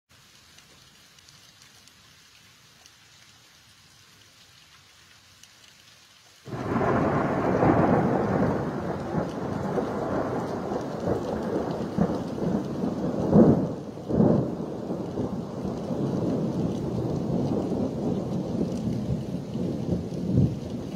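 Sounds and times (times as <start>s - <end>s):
thunder clap and rumble: 6.5s - 20.9s.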